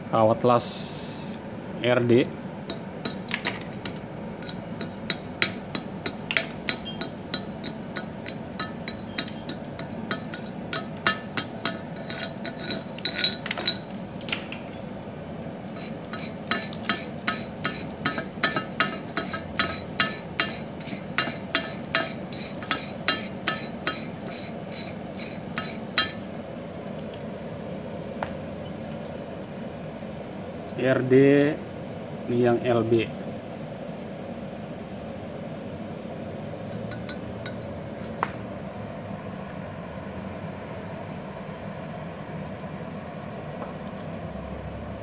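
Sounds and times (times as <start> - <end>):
wire brush scrubbing metal: 5.7 - 13.9, 15.7 - 26.2.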